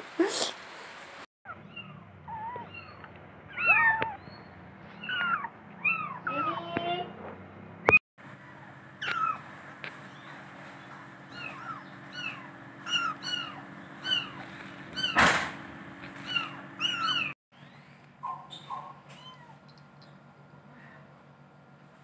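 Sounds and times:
kitten mewing: 1.6 - 4.2, 11.3 - 15.2, 16.1 - 17.4.

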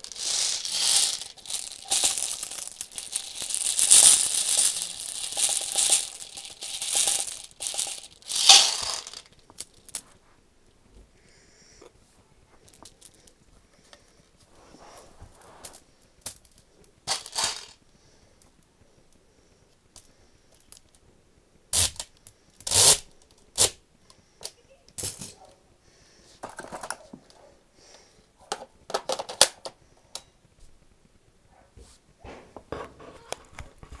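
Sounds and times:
clicks and rattles of handled gear: 0.0 - 10.0, 16.3 - 17.8.

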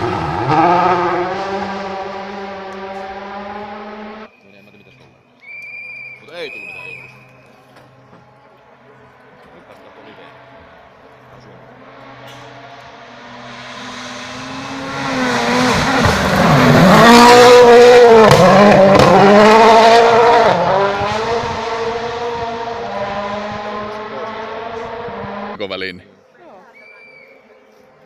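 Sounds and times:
rally car engine passing: 0.0 - 4.3, 7.8 - 25.8.

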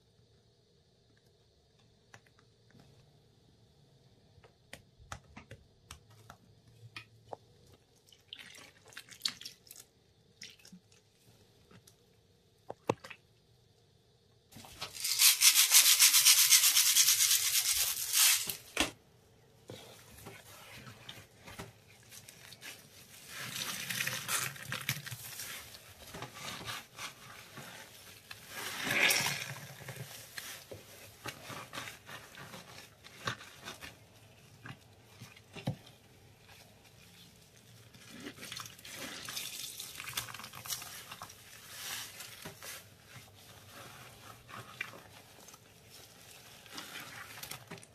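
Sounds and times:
hands kneading wet paste: 19.6 - 47.9.

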